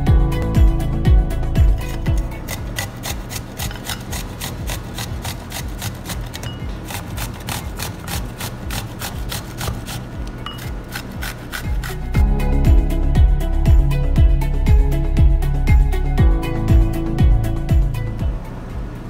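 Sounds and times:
grating on metal grater: 0:01.8 - 0:12.2.

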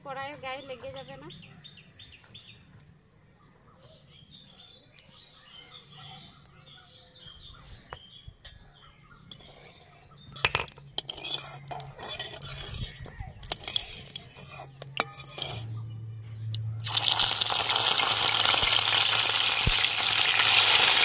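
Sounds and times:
birds chirping: 0:00.0 - 0:14.0
metal spatula scraping a wok: 0:09.2 - 0:15.8.

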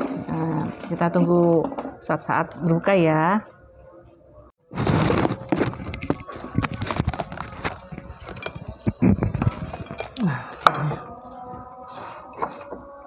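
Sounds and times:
dishes and cutlery clinking: 0:05.8 - 0:11.0, 0:11.9 - 0:13.0.

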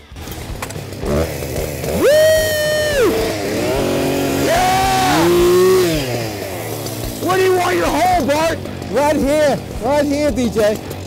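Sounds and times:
small engine revving: 0:00.0 - 0:11.0.

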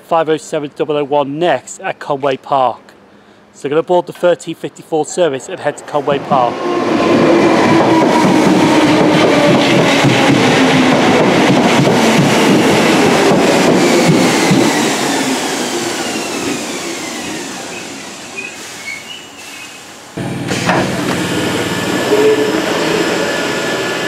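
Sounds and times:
electric train whine: 0:05.2 - 0:24.0.

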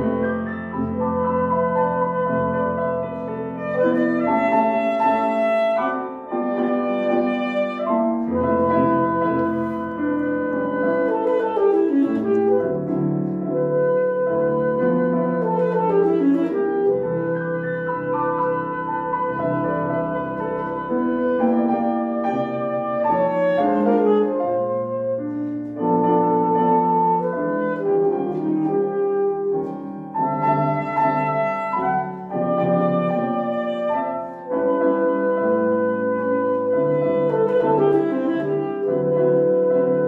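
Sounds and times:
alto saxophone melody: 0:00.0 - 0:40.0
grand piano accompaniment: 0:00.0 - 0:40.0.

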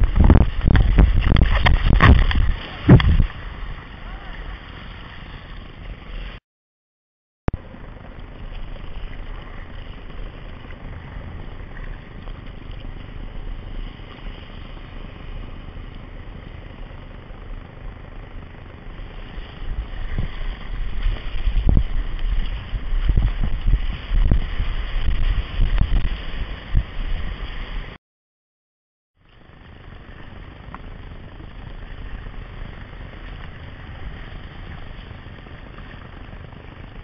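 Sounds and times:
ocean surf rushing around rocks: 0:00.0 - 0:06.4
wind buffeting on microphone: 0:00.0 - 0:06.4, 0:07.5 - 0:28.0, 0:29.4 - 0:37.0.

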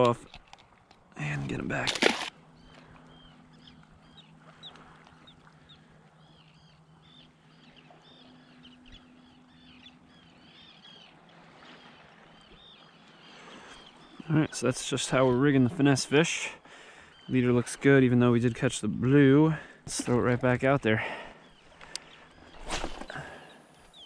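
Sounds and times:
low steady hum: 0:00.0 - 0:13.5
birds chirping: 0:00.0 - 0:24.0.

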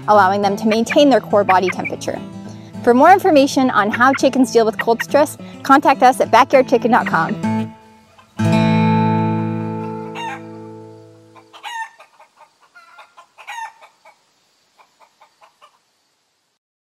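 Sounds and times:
chickens clucking: 0:00.5 - 0:02.2, 0:03.0 - 0:05.4, 0:06.8 - 0:08.4, 0:09.8 - 0:10.6, 0:11.2 - 0:15.8
strummed guitar chord: 0:08.4 - 0:11.2.

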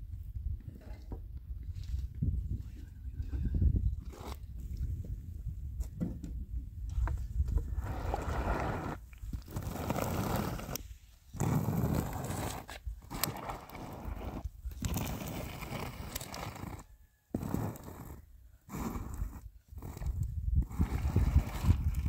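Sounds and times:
squeegee scraping through bitumen: 0:07.6 - 0:22.0.

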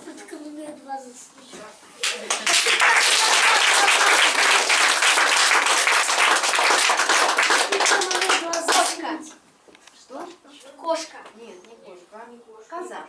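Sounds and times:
audience applauding: 0:02.0 - 0:09.0.

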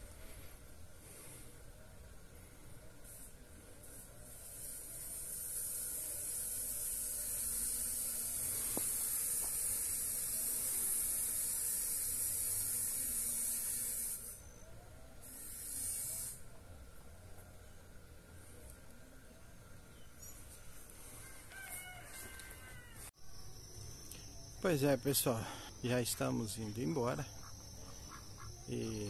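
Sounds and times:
high-pitched insect buzz: 0:03.0 - 0:16.5, 0:23.2 - 0:29.0.

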